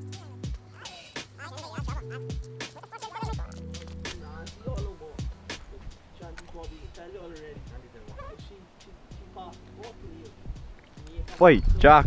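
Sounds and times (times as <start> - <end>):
vocal line: 0.0 - 4.7
hip hop beat with deep bass: 0.0 - 11.4.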